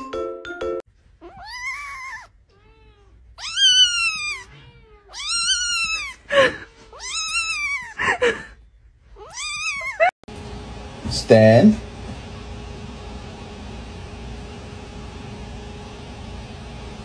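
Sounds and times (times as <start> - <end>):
kitten meowing: 1.2 - 8.0, 9.2 - 10.1.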